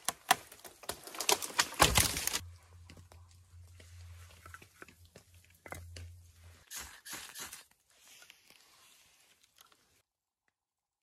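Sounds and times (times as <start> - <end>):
firewood crunching and knocking: 0.0 - 3.4.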